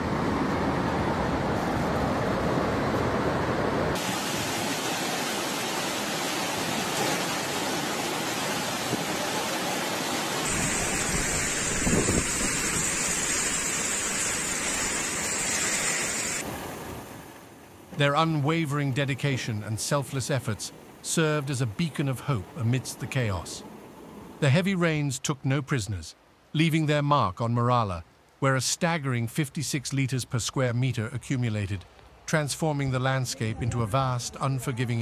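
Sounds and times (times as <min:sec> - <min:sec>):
floodwater rushing: 0:00.0 - 0:26.9
wind: 0:00.0 - 0:35.0
driving rain: 0:03.9 - 0:17.0.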